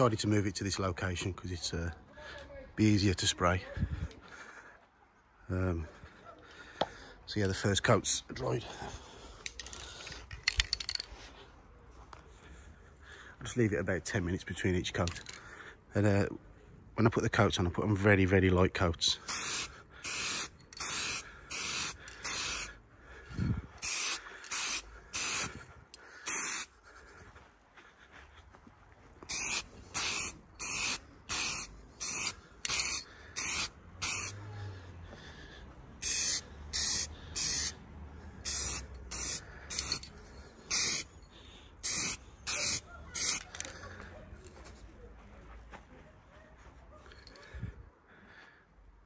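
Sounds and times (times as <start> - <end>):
aerosol spray can hissing: 19.3 - 22.8, 23.8 - 25.5, 26.3 - 26.7, 29.3 - 34.4, 36.0 - 37.8, 38.4 - 40.0, 40.7 - 41.1, 41.8 - 43.5.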